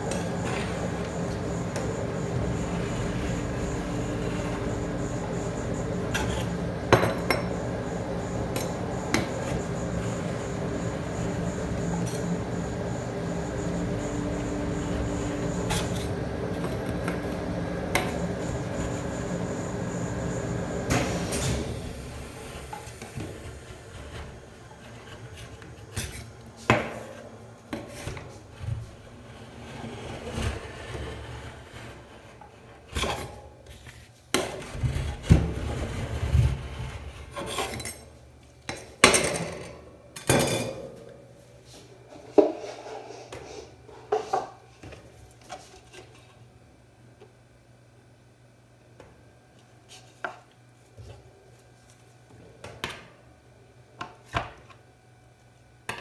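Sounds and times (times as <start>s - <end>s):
mechanical hum: 0.0s - 56.0s.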